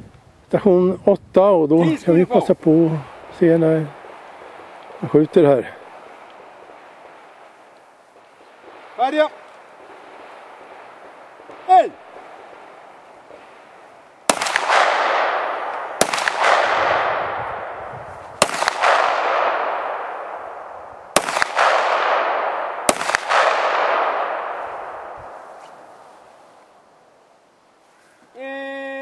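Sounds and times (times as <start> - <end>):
pistol shots with echo: 14.3 - 25.5.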